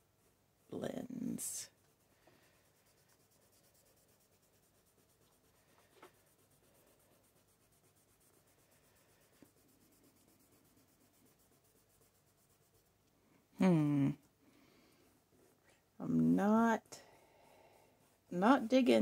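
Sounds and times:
fingertip rubbing pastel on paper: 1.3 - 13.0.

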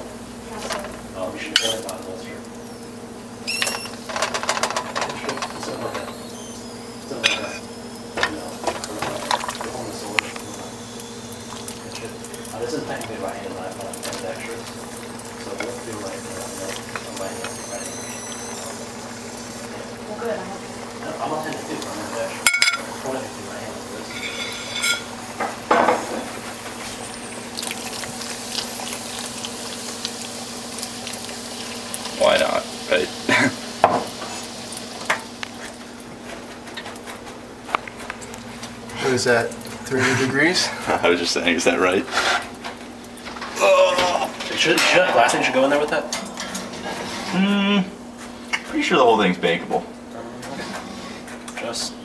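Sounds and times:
liquid bubbling and crackling: 0.2 - 48.8
crackles and light clicks: 34.7 - 39.9.

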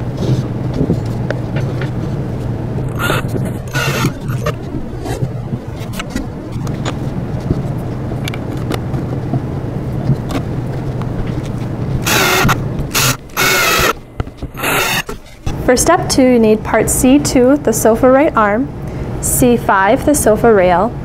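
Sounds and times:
cordless drill whirring: 2.9 - 4.6, 12.0 - 15.2.

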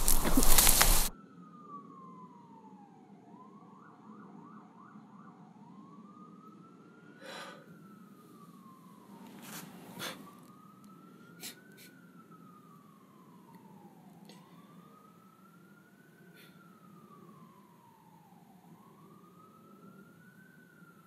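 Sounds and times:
distant siren wailing: 0.0 - 21.0.

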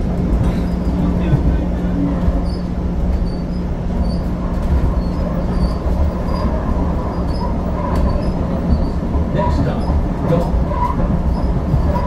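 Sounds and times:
light rail car rumbling: 0.0 - 12.0.

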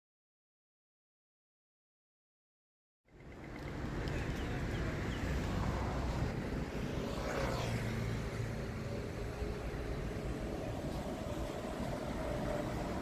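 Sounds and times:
rumble of road traffic: 3.0 - 13.0
vehicle passing close: 3.2 - 13.0.

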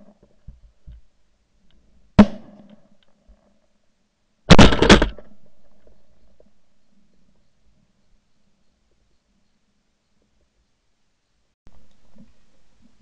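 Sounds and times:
shotgun blasts: 4.5 - 5.4.

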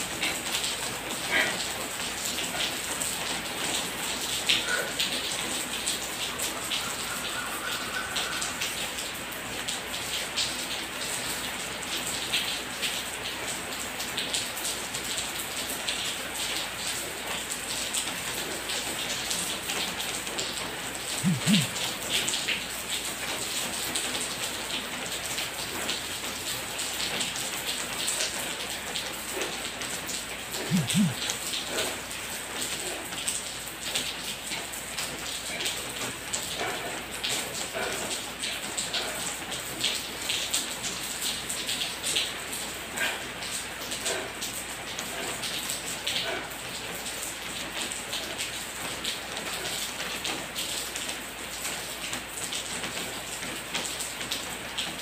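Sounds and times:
rain pattering: 0.0 - 55.0
brief low sounds: 21.2 - 21.8, 30.7 - 31.2.

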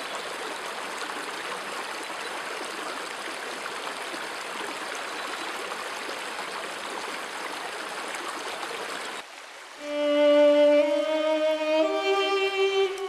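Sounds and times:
stream babbling over rapids: 0.0 - 13.0
slow held violin notes: 9.8 - 13.0.

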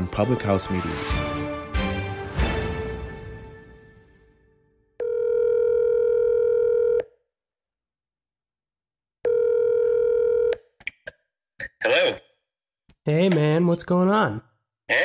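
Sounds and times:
intro music: 0.0 - 4.7
phone ringing tone: 5.0 - 7.2, 9.2 - 10.5.

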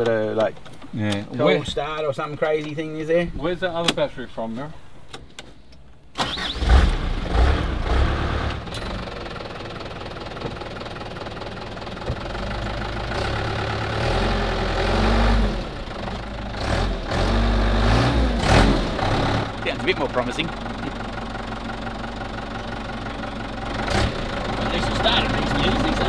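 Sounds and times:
diesel engine rough idle: 7.0 - 17.6, 18.9 - 26.0.

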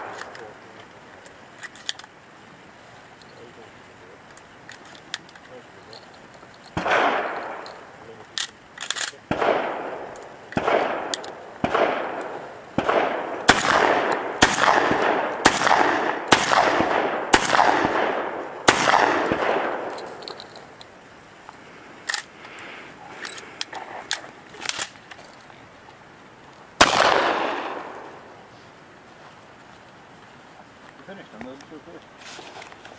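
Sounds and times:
shotgun shots echoing: 6.8 - 7.9, 9.0 - 20.3, 26.8 - 28.4.

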